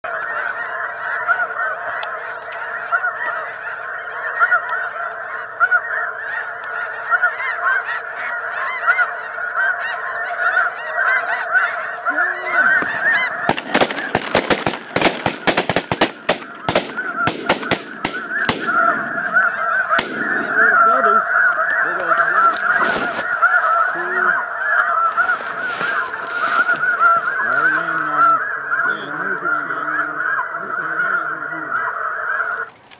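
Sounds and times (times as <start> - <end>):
geese honking: 0.0 - 32.9
shotgun shots: 12.8 - 21.0.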